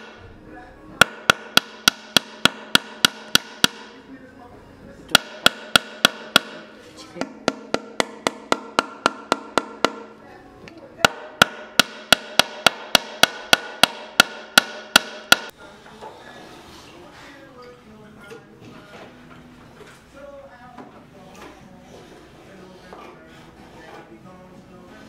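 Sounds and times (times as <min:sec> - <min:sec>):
hammer tapping wood ringing: 0:01.0 - 0:04.0, 0:05.2 - 0:06.7, 0:07.4 - 0:10.1, 0:11.1 - 0:15.5.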